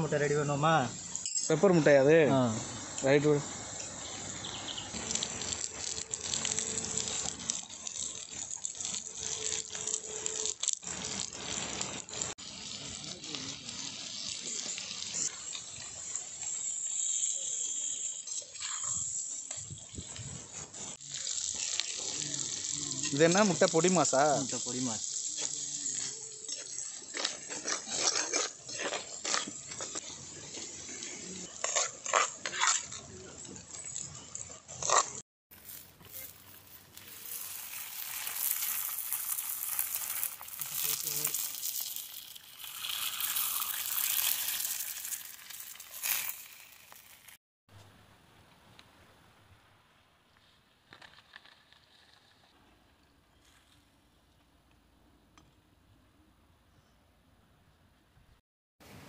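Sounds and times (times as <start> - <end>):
eggs sizzling in hot oil: 0.1 - 32.4, 35.5 - 47.4
metal spoon scraping in clay pot: 37.0 - 47.4.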